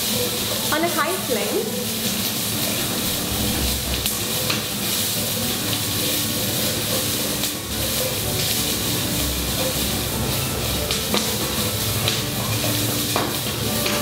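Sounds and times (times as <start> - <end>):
food sizzling in hot oil: 0.0 - 14.0
spatula scraping and tapping pan: 10.7 - 14.0.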